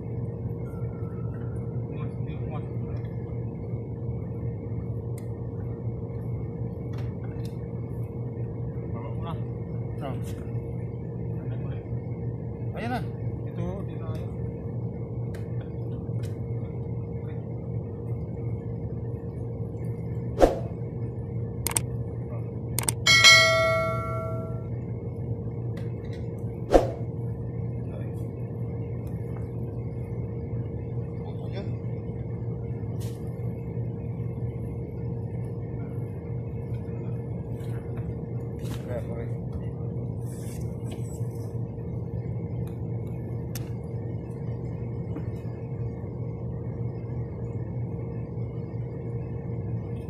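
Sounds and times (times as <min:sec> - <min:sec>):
low hum: 0:00.0 - 0:50.0
machinery low drone: 0:00.0 - 0:50.0
sharp click: 0:22.8 - 0:23.0
bell-like notification chime: 0:23.1 - 0:24.6.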